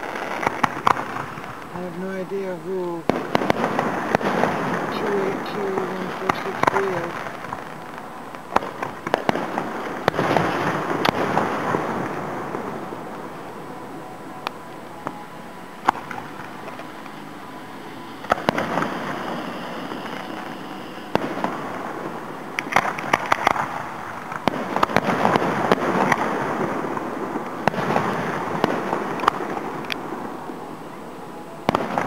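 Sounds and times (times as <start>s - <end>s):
firework crackling pops: 0.0s - 13.4s, 18.2s - 30.1s, 31.7s - 32.0s
distant firework bursts: 0.0s - 31.0s, 31.6s - 32.0s.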